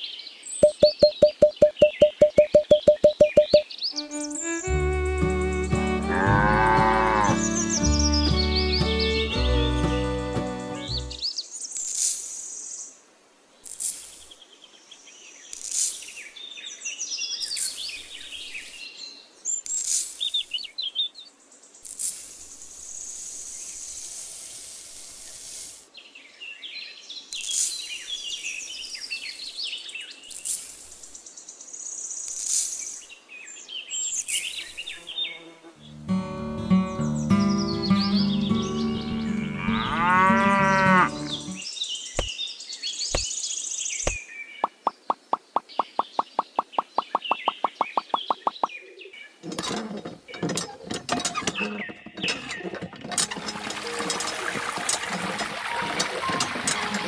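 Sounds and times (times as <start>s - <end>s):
small birds chirping: 0.0s - 13.0s, 13.6s - 24.1s, 25.1s - 52.8s
sand pouring: 23.1s - 25.8s.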